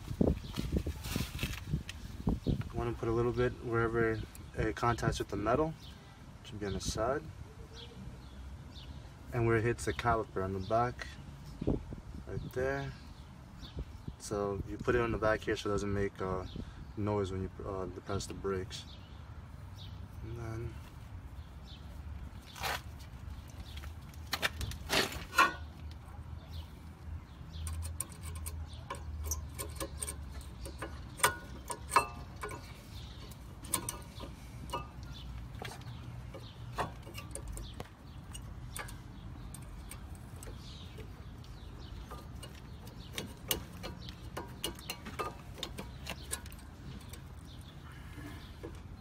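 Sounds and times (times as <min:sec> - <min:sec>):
brake pads clicking and knocking: 0:27.6 - 0:47.8.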